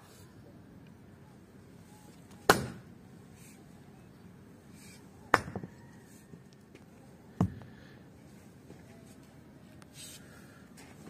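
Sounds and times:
axe chopping log: 0:02.5 - 0:02.8, 0:05.3 - 0:05.7.

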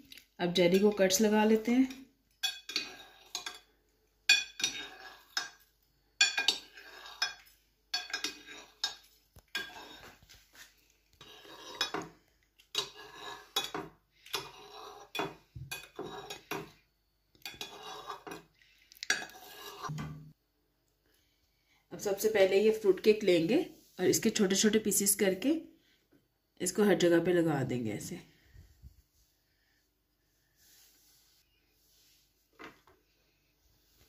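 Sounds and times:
cutter wheel scraping glass bowl: 0:02.6 - 0:03.6, 0:04.6 - 0:05.4, 0:06.3 - 0:10.2, 0:11.2 - 0:12.1, 0:12.7 - 0:16.5, 0:17.4 - 0:18.4, 0:19.1 - 0:20.0.

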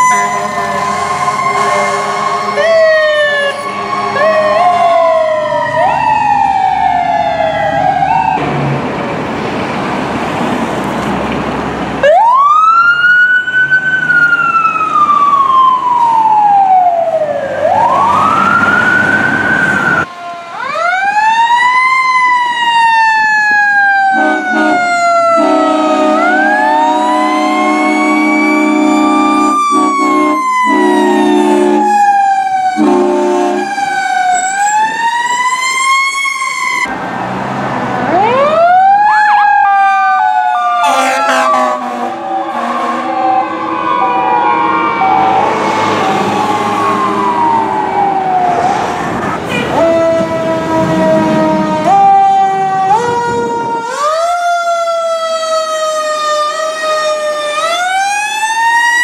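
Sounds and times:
low horn tone: 0:00.0 - 0:05.1, 0:24.1 - 0:32.0, 0:32.7 - 0:33.8, 0:40.8 - 0:43.8
fire truck sirens wailing: 0:00.0 - 0:59.0.

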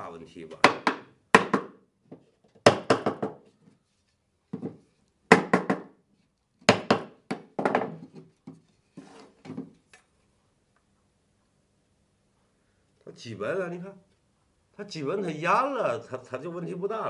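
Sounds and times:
hammer knocking on wood: 0:00.6 - 0:03.4, 0:04.6 - 0:06.0, 0:06.7 - 0:08.0.

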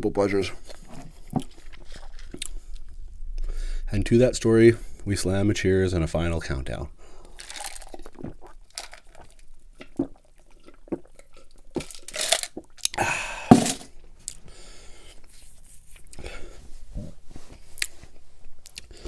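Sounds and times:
breathy exhale: 0:03.4 - 0:03.9, 0:13.0 - 0:13.6
person gulping a drink: 0:07.2 - 0:13.8.

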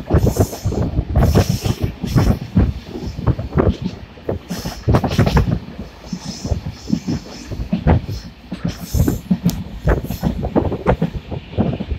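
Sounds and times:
train wheels rumbling on rail: 0:00.0 - 0:11.9.

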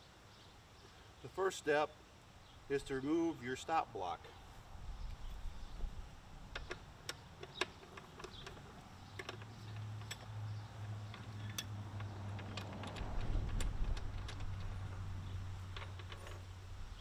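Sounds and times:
light metallic clicks and taps: 0:06.5 - 0:14.7.

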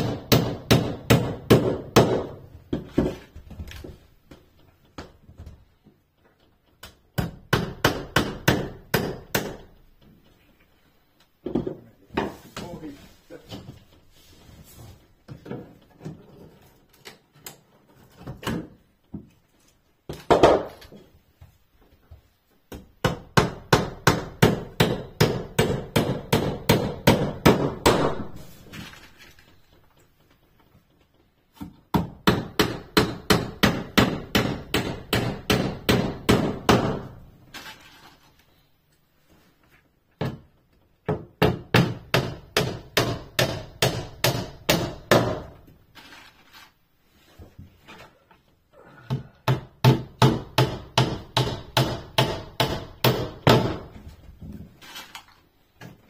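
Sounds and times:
hammer tapping nails into wood: 0:00.0 - 0:03.2, 0:06.3 - 0:10.2, 0:22.7 - 0:28.1, 0:31.6 - 0:37.1, 0:40.2 - 0:45.6, 0:49.1 - 0:54.0.

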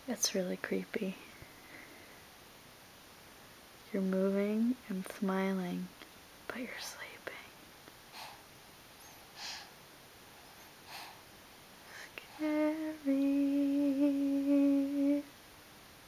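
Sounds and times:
soft breath puffs: 0:06.6 - 0:12.5.

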